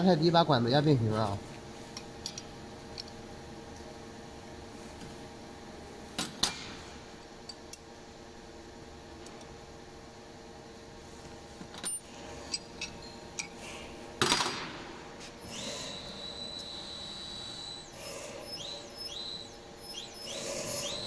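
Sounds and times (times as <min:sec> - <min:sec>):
high-pitched machine whine: 0:15.3 - 0:21.0.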